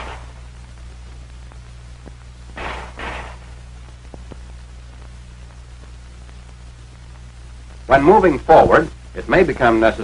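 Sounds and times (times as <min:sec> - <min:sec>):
film soundtrack hum: 0:00.0 - 0:10.0
pistol shots: 0:02.6 - 0:03.6.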